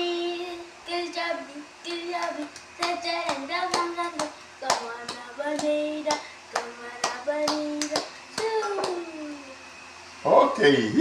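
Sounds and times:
child singing: 0.0 - 9.5
hand claps: 2.2 - 9.1.

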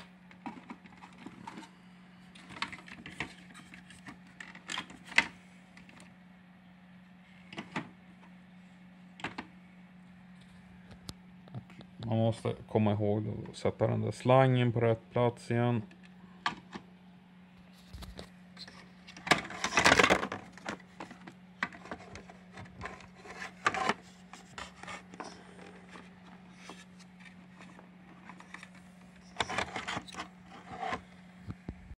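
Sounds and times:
plastic parts clicking and scraping: 0.0 - 6.1, 17.8 - 31.1
steady low hum: 0.0 - 32.0.

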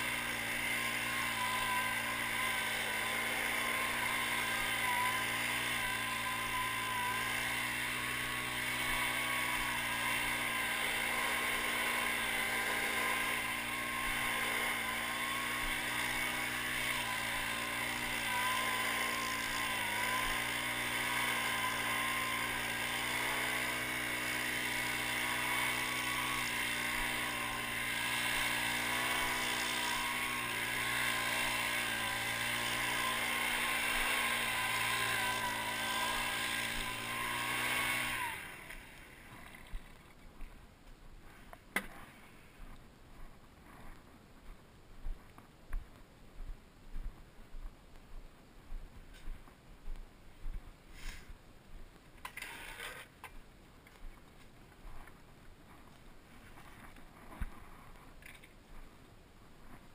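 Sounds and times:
leaf blower running: 0.0 - 40.6, 52.2 - 53.1.

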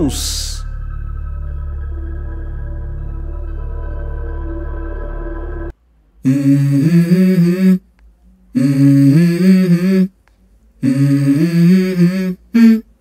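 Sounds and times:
wordless singing voice: 6.2 - 13.0.

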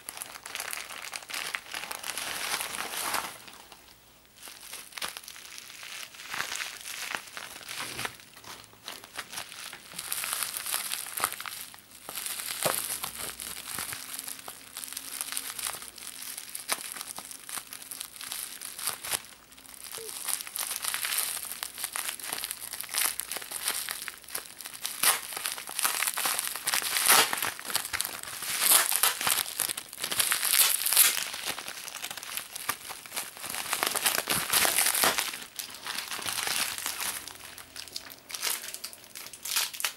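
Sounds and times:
bubble wrap crinkling: 0.0 - 39.9.

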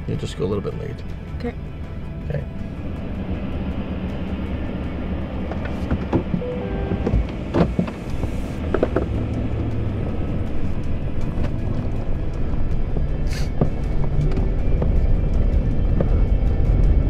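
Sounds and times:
vehicle engine rumble: 0.0 - 17.0.

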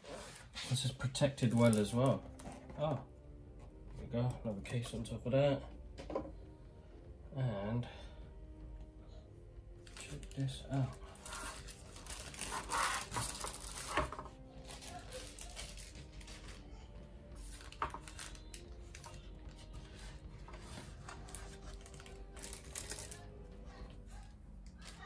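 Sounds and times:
plastic packaging crinkling: 0.4 - 2.6, 9.8 - 23.4.

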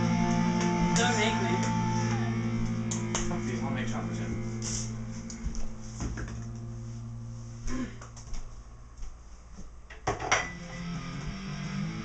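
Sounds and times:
knocks and clicks from handling things: 9.9 - 10.6.

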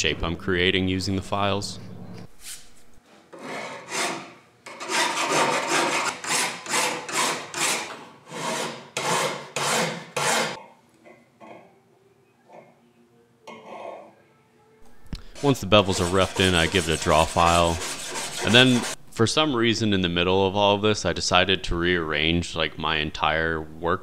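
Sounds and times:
hand file rasping on steel: 3.4 - 10.6, 15.2 - 19.0.

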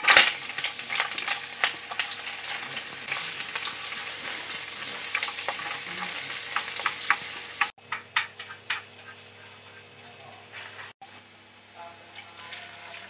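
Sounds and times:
onion sizzling in oil: 0.0 - 13.0
chopsticks clicking against pan: 7.9 - 8.9.

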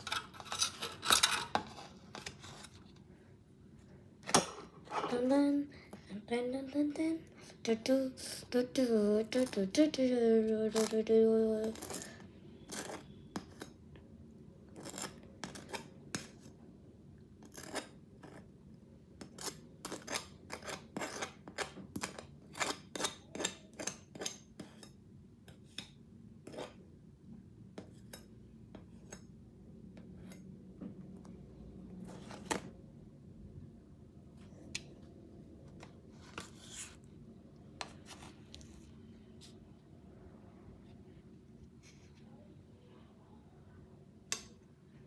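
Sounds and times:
butter knife scraping through cream: 11.6 - 13.8, 14.8 - 16.4, 17.4 - 18.5, 19.2 - 25.0, 26.4 - 26.8.

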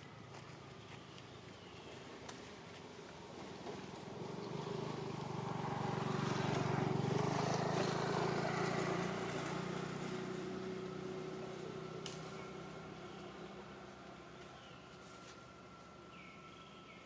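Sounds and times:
vehicle engine passing by: 3.2 - 16.3.

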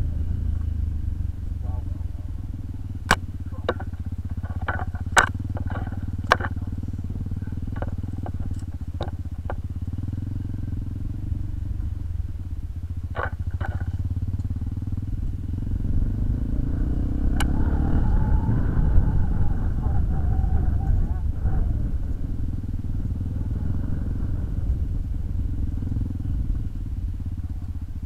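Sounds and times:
motorcycle engine: 0.0 - 28.0
knocks and clatters: 3.1 - 6.8, 7.6 - 9.7, 13.0 - 14.5.

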